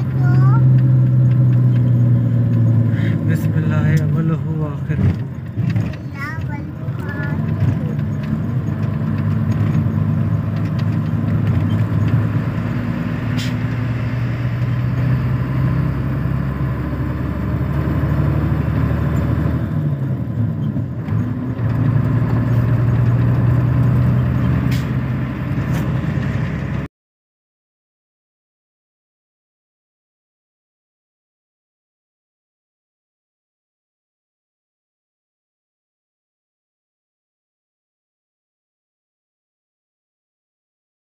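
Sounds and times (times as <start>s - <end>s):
road noise: 0.0s - 26.9s
vehicle engine running: 0.0s - 26.9s.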